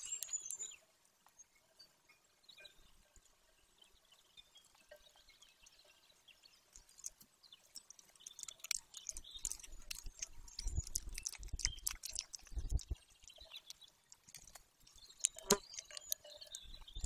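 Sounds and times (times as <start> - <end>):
small clicks and snaps: 0.0 - 1.4, 6.7 - 17.0.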